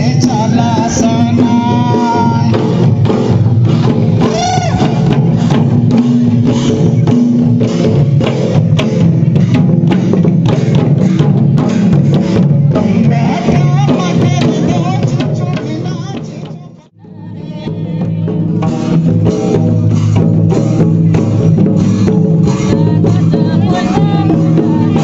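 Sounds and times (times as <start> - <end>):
hand-beaten barrel drum: 0.0 - 25.0.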